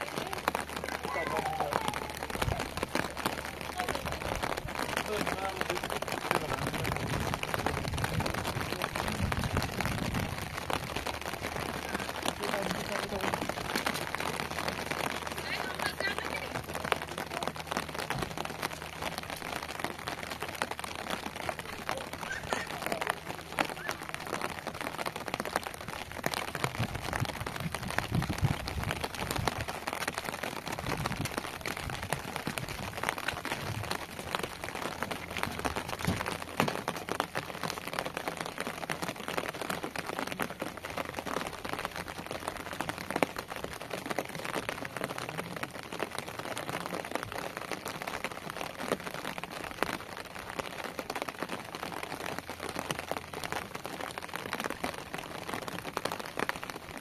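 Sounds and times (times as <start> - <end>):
low rumbles: 0.0 - 47.5
rain pattering: 0.0 - 57.0.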